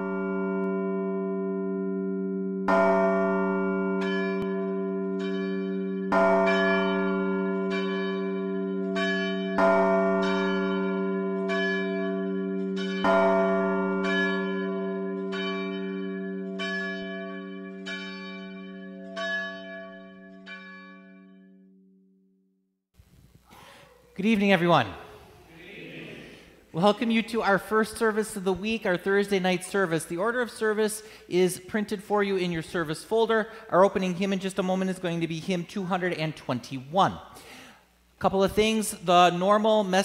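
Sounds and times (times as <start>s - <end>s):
church bells ringing: 0.0s - 21.8s.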